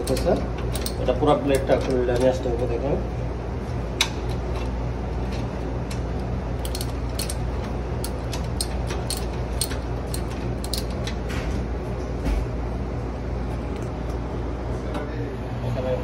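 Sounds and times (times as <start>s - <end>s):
ratchet wrench clicking: 0.0s - 1.7s, 6.6s - 11.2s
steady low hum: 0.0s - 16.0s.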